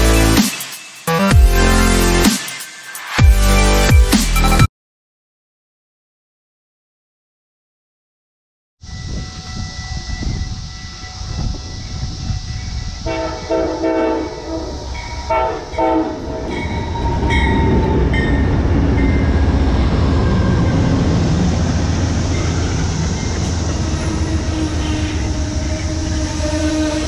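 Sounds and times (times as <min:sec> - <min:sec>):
train rumbling past: 0:08.8 - 0:27.0
train horn blasts: 0:12.8 - 0:18.4, 0:23.2 - 0:27.0.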